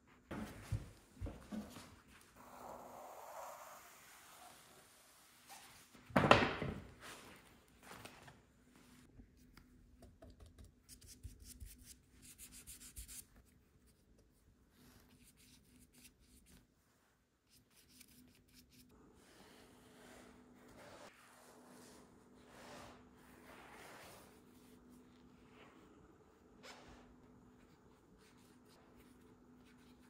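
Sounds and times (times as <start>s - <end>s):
rubbing and scratching on foam: 20.0s - 24.9s.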